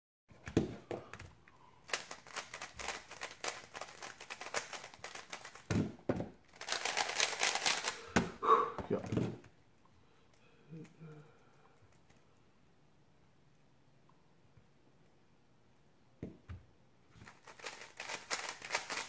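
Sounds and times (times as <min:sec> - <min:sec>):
puzzle cube plastic clicks: 0:01.1 - 0:05.9, 0:06.5 - 0:08.2, 0:17.2 - 0:19.0.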